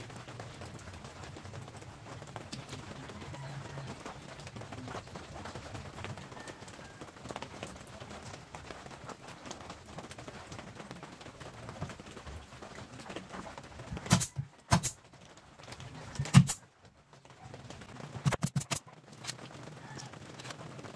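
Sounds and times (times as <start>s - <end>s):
pneumatic nail gun shots: 14.0s - 15.0s, 16.2s - 16.6s.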